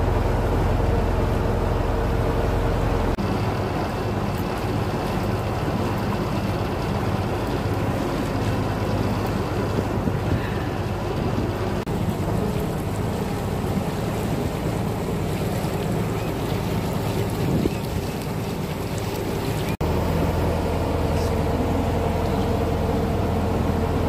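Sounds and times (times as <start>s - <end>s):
motorboat engine humming: 0.0s - 24.0s
water rushing past hull: 0.0s - 24.0s
wind buffeting microphone: 6.8s - 19.8s.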